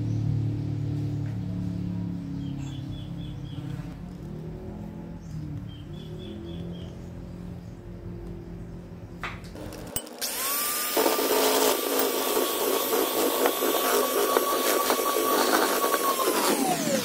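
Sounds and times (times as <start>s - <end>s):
electric hand mixer whine: 9.6s - 17.0s.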